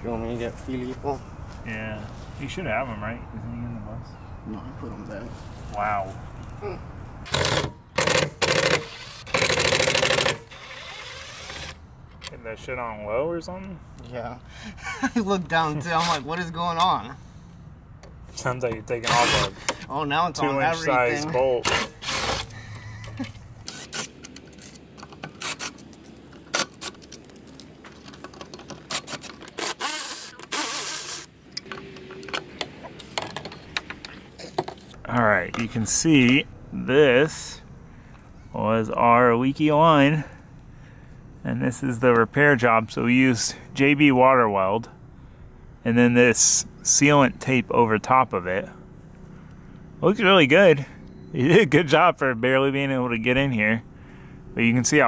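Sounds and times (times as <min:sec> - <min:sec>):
impact driver hammering: 0:07.3 - 0:10.7.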